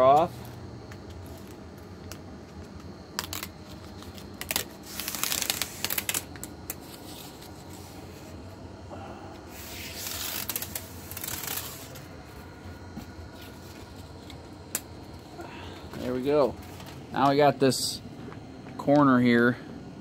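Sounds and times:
paper liner peeling off tape: 0:03.1 - 0:07.9, 0:09.5 - 0:12.1.

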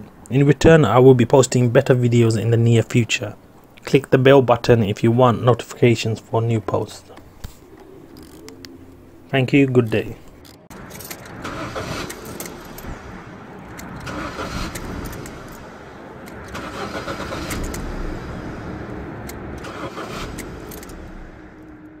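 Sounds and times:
car engine starting and running: 0:06.7 - 0:22.0
keys jangling: 0:10.3 - 0:11.4.

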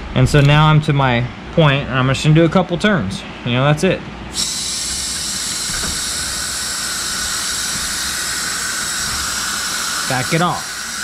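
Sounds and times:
steady hiss: 0:04.3 - 0:11.0.

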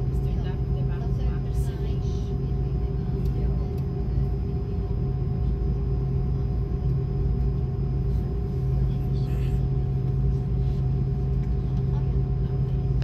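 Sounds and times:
jet engines droning in cabin: 0:00.0 - 0:13.0.

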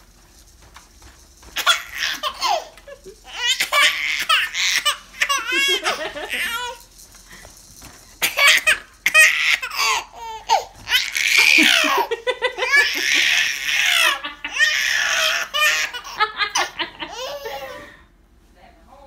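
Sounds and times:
baby laughing: 0:01.6 - 0:06.8, 0:08.2 - 0:17.9.

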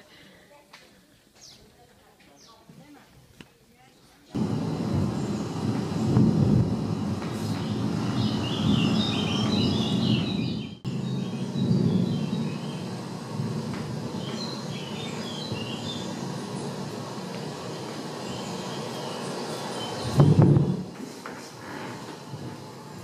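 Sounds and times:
low rumble: 0:04.4 - 0:18.8.

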